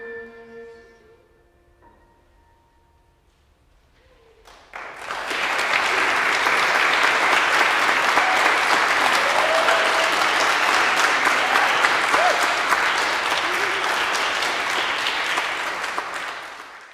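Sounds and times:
audience applause: 4.4 - 16.9.

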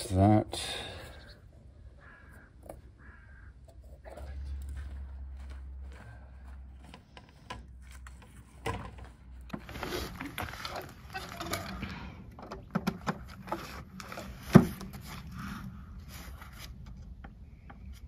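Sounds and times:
bag rustling and scraping: 9.6 - 11.9.

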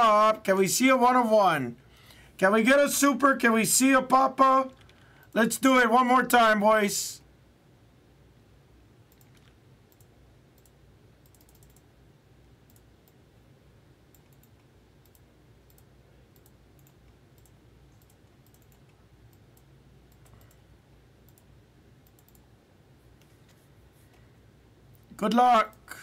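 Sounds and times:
low steady hum: 0.0 - 26.0
computer keyboard and mouse clicking: 9.1 - 11.9, 12.7 - 13.2, 14.1 - 20.6, 21.3 - 22.5.

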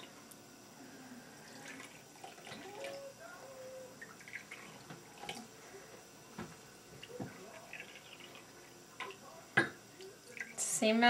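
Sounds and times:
water trickling into cups: 4.0 - 5.5, 7.0 - 10.7.

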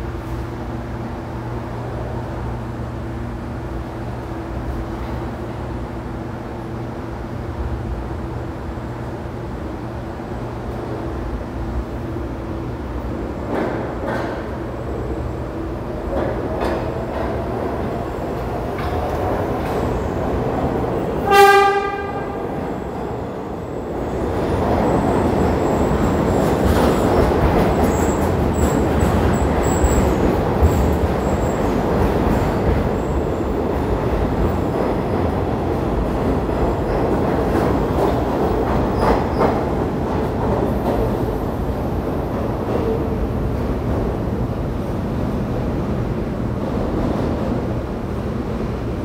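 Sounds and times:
train rumble: 0.0 - 49.0
steel wheels clattering on rail: 13.4 - 15.0, 15.8 - 45.8
train horn blast: 21.2 - 22.6.

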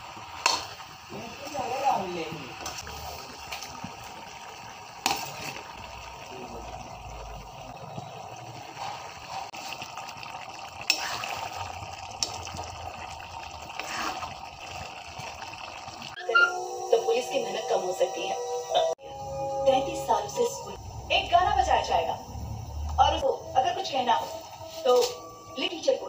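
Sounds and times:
curry sizzling in a pan: 0.0 - 18.3.

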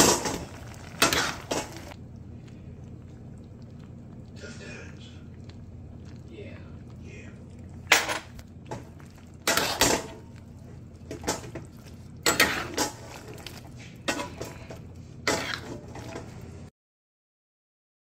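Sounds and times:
metal spatula scraping a wok: 0.0 - 1.9, 9.4 - 10.2, 12.2 - 13.2, 14.1 - 16.2
steady low hum: 0.0 - 16.7.

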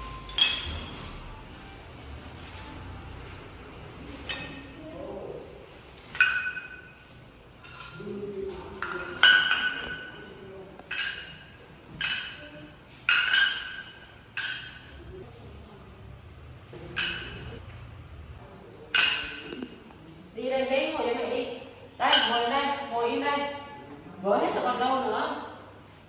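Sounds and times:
ceramic shards clinking: 0.0 - 1.2, 6.1 - 8.0, 8.8 - 15.0, 16.9 - 17.6, 18.9 - 19.6.

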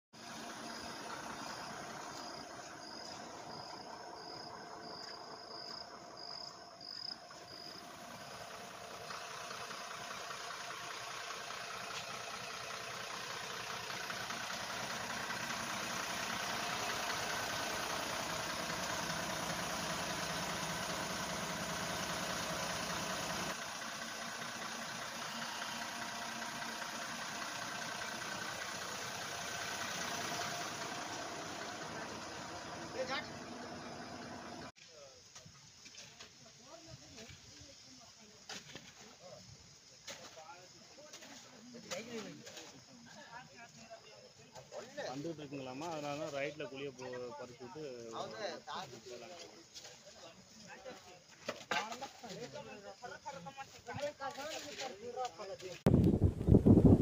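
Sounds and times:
truck engine running: 0.2 - 34.7
insect chirping: 0.2 - 57.0.

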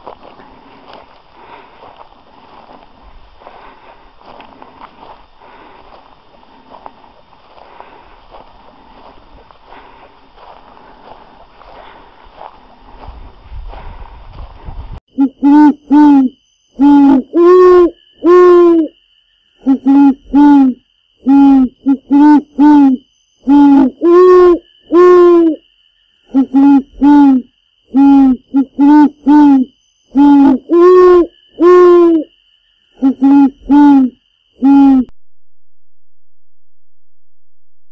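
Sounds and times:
owl-like hooting notes: 15.1 - 19.0, 19.6 - 25.6, 26.2 - 32.3, 33.0 - 35.1.

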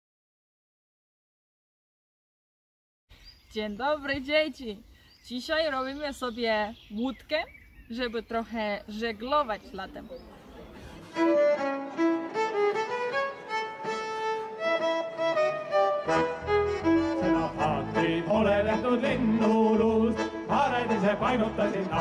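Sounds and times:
instrumental background music: 11.2 - 22.0.

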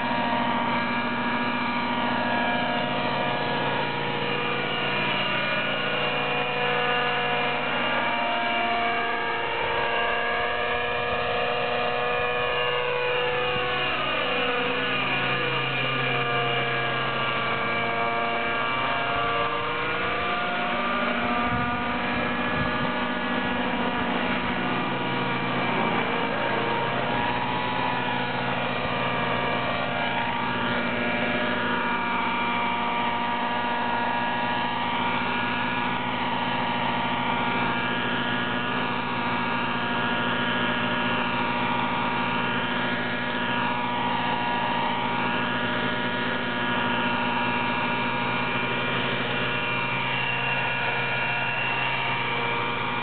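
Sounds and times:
model helicopter engine running: 0.0 - 53.0.

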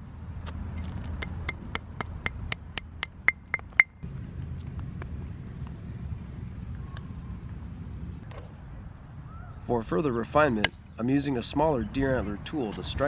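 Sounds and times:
antler tapping obsidian: 1.2 - 4.0.

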